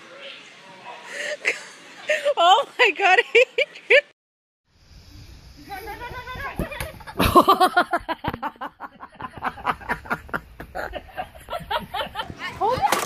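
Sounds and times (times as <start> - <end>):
person laughing hard: 6.8 - 12.5.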